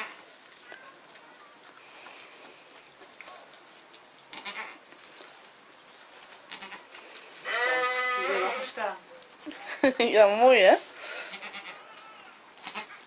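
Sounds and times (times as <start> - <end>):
rustling in straw: 0.0 - 13.0
goat bleating: 4.3 - 4.8, 6.5 - 8.8, 11.1 - 13.0.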